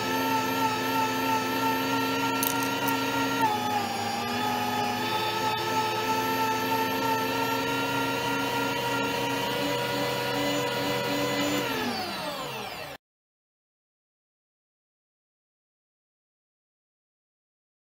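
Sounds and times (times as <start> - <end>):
meat grinder motor whine: 0.0 - 13.0.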